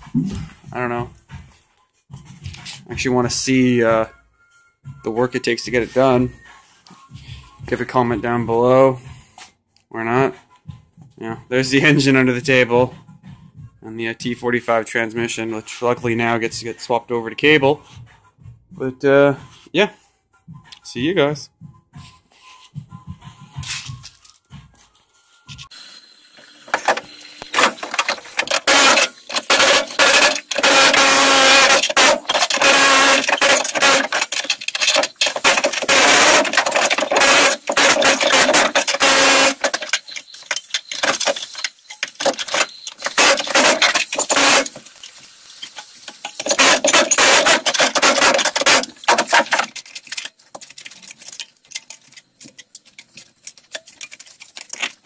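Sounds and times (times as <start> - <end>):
air chisel hammering sheet metal: 27.6 - 39.9.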